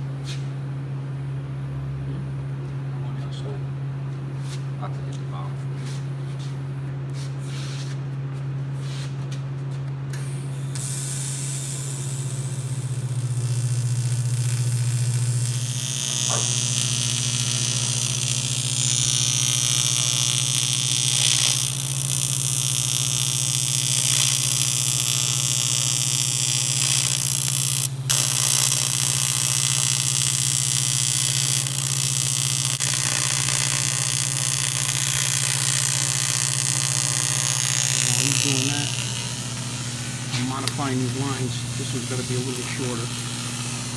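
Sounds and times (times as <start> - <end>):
constant low hum: 0.0 - 43.9
welding arc hissing and buzzing: 10.1 - 43.9.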